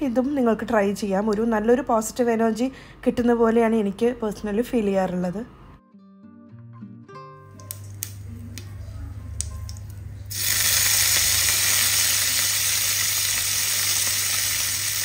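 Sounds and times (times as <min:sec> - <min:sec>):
seeds popping in hot oil: 0:09.4 - 0:15.0
loud oil sizzle: 0:10.3 - 0:15.0.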